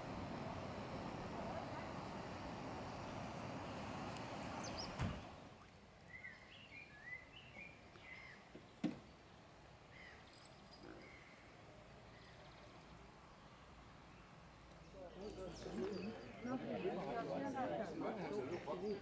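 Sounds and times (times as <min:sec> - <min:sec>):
birds chirping: 0:00.0 - 0:17.4
car bonnet shutting clunk: 0:04.9 - 0:05.2
murmur of crowd: 0:14.9 - 0:19.0.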